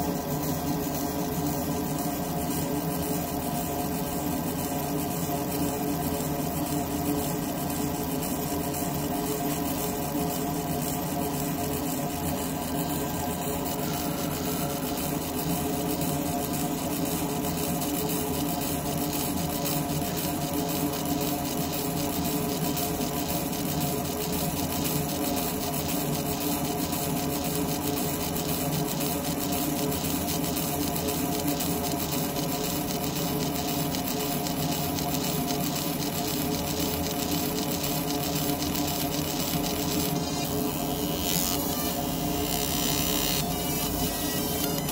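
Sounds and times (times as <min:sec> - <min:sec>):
laser engraver buzzing: 0:00.0 - 0:44.9.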